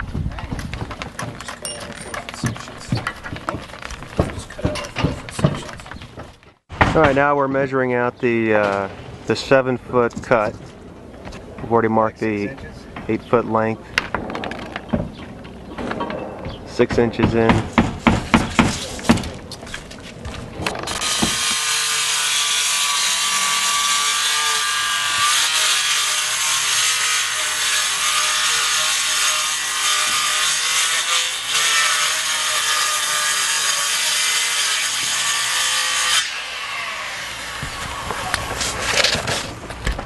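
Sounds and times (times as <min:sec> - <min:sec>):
circular saw cutting wood: 0:20.9 - 0:38.9.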